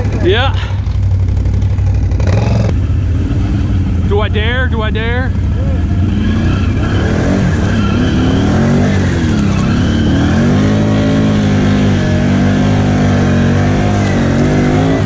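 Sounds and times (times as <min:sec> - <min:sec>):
atv engine revving: 0:00.0 - 0:15.0.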